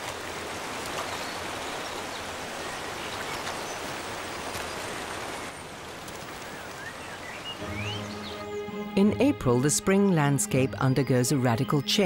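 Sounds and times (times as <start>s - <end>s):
waterfall splashing into pool: 0.0s - 2.0s.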